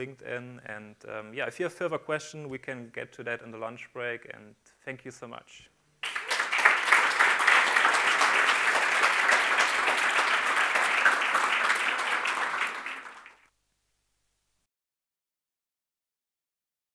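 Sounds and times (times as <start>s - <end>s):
audience applauding: 6.0s - 13.5s.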